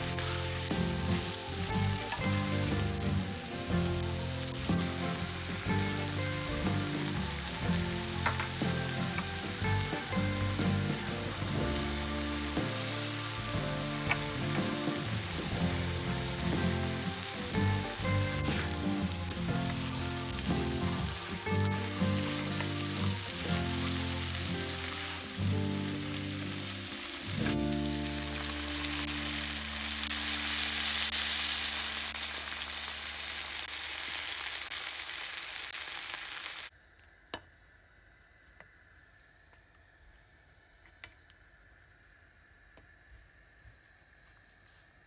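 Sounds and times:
background music of held notes: 0:00.0 - 0:31.1
mushrooms sizzling in a pan: 0:00.0 - 0:36.7.

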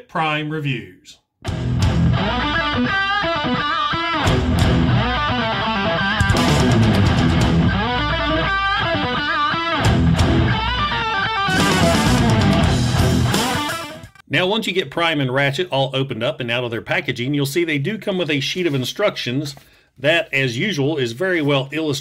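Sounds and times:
rock music with electric guitar: 0:01.4 - 0:14.2.

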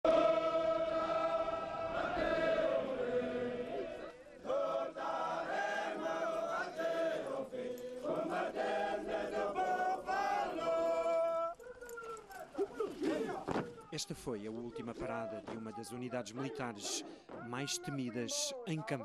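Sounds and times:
men singing in unison: 0:00.0 - 0:11.6.

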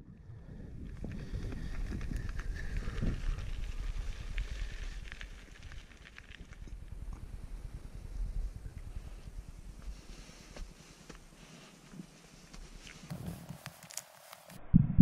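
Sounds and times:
wind rumbling on microphone: 0:00.0 - 0:10.9, 0:14.5 - 0:15.0
bike tyres clicking on stones: 0:00.6 - 0:11.6, 0:12.7 - 0:14.6.

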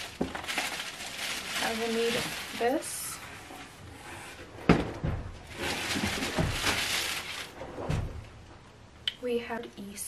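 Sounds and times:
plastic wrapping crinkling: 0:00.0 - 0:03.9, 0:05.4 - 0:08.1.

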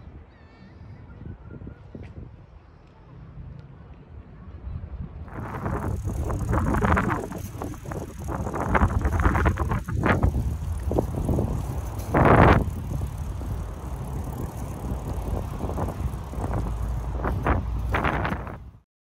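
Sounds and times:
wind buffeting microphone: 0:04.8 - 0:18.8
bike rolling over pavement: 0:05.3 - 0:18.8.

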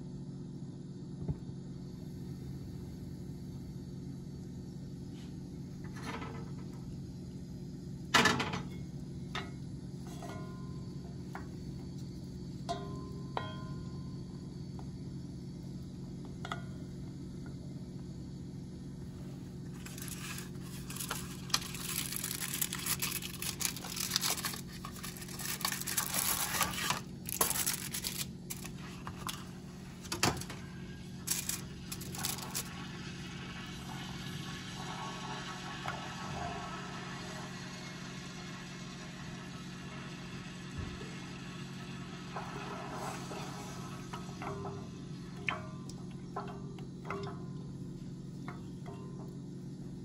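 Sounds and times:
steady low hum: 0:00.0 - 0:36.0, 0:38.8 - 0:50.0
foil wrapper crinkling and tearing: 0:19.8 - 0:29.4, 0:31.2 - 0:32.8.

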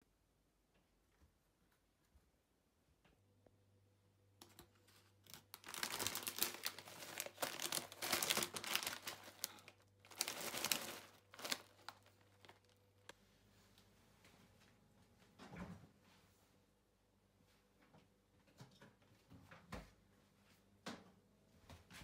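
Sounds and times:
plastic snack bag crinkling: 0:04.4 - 0:13.1.

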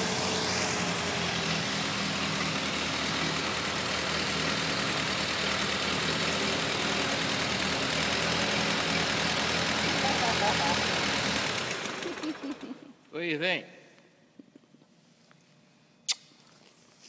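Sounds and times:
tractor engine idling: 0:00.0 - 0:12.8.

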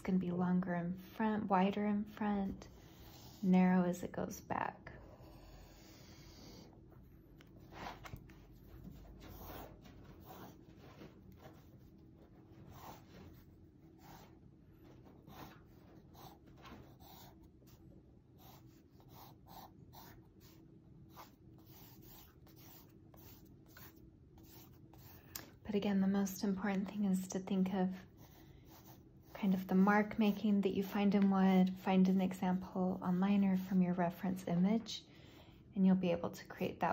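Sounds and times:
pencil scratching on paper: 0:02.2 - 0:03.8, 0:05.1 - 0:14.4, 0:15.1 - 0:25.3, 0:26.7 - 0:33.8.

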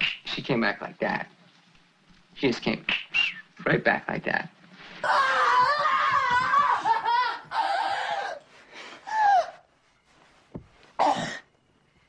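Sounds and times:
people laughing and exclaiming: 0:05.0 - 0:08.2.

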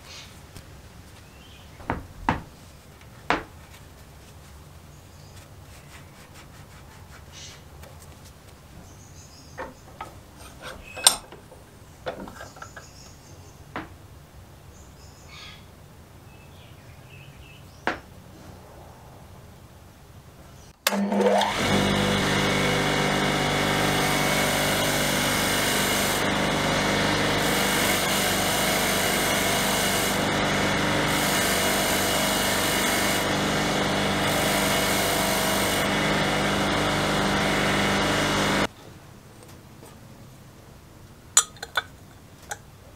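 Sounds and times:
bench grinder running: 0:20.9 - 0:38.7.

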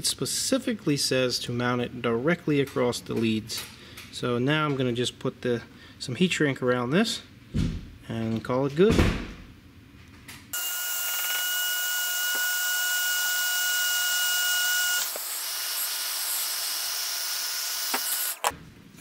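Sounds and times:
heat gun blowing air: 0:10.6 - 0:18.5
high motor whine: 0:10.6 - 0:18.5.

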